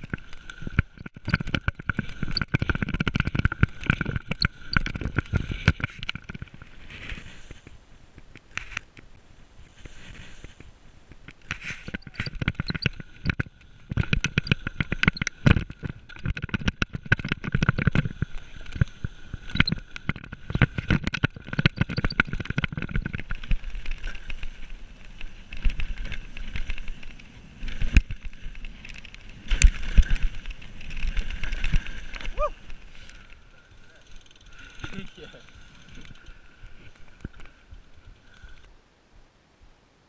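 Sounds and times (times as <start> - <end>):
bike rattling and clattering: 0.0 - 9.0, 9.6 - 38.6
tyre noise: 20.4 - 33.2.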